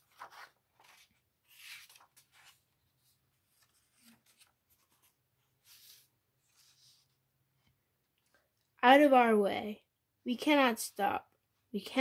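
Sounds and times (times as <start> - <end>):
paper page rustling: 0.0 - 7.2.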